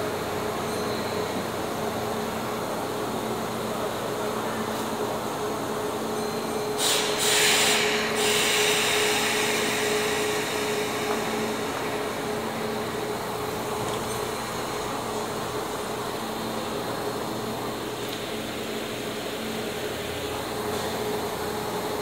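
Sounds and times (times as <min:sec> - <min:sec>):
train mechanical hum: 0:00.0 - 0:22.0
compressed air hiss: 0:06.8 - 0:11.8.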